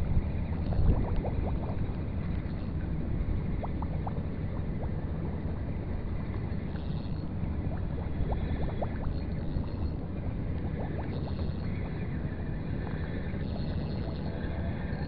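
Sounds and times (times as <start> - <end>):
water lapping and gurgling: 0.0 - 15.0
wind rumble on microphone: 0.0 - 15.0
squeaks of bubbling water: 0.5 - 2.8.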